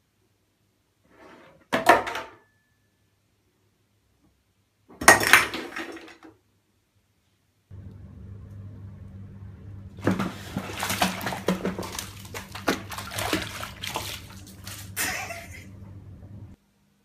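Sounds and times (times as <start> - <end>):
steady low hum: 7.7 - 17.0
water splashing and sloshing: 9.9 - 15.9.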